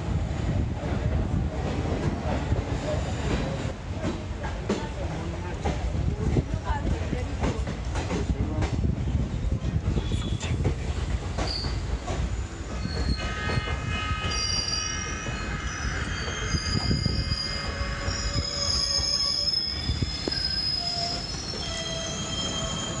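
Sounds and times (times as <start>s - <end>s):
train rumbling on rails: 0.0s - 23.0s
steel wheels squealing on rails: 2.2s - 3.8s, 9.3s - 23.0s.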